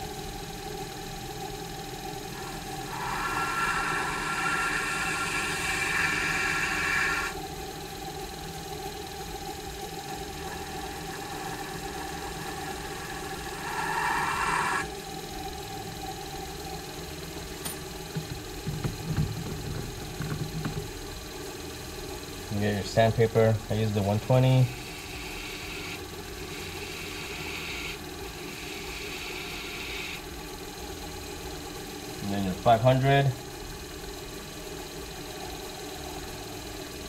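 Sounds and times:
lathe running: 0.0s - 30.2s
blade scraping spinning tip: 2.4s - 7.4s, 10.4s - 14.9s.

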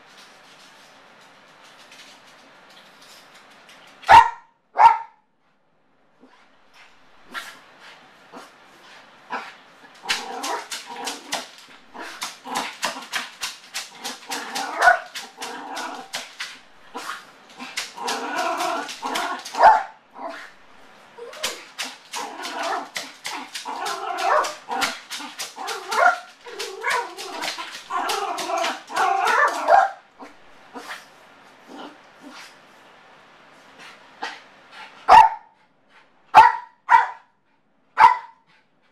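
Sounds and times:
small dog barking sharp yips: 4.1s - 5.2s, 35.1s - 35.5s, 36.4s - 37.2s, 38.0s - 38.4s.

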